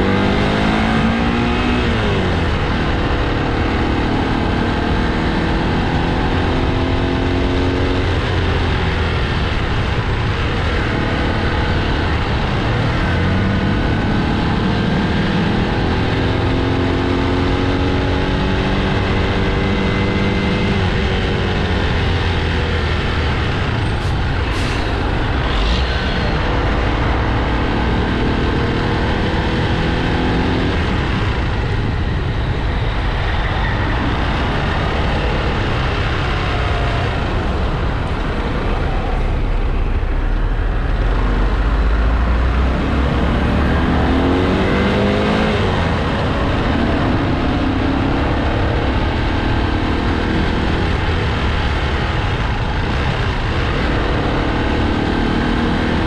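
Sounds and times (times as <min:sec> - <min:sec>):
motorcycle engine accelerating: 0:00.0 - 0:56.0
passing traffic: 0:00.0 - 0:56.0
wind and road noise: 0:00.0 - 0:56.0.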